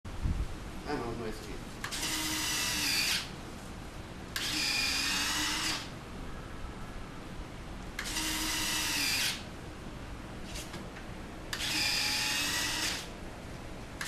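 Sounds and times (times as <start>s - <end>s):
small motor whine: 1.9s - 3.3s, 4.4s - 5.9s, 8.0s - 9.4s, 11.5s - 13.1s.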